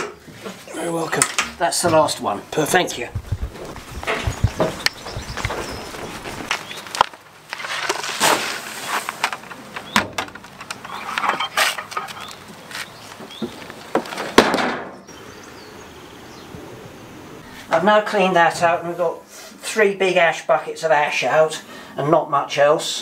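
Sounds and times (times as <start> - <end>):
footsteps on wooden pontoon: 1.8 - 7.2.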